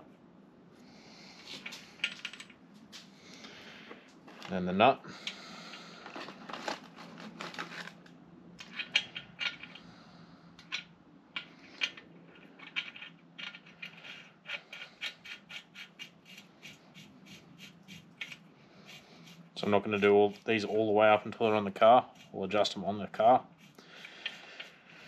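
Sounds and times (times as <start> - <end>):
metal parts clicking and rattling: 8.6 - 9.9, 10.6 - 16.4.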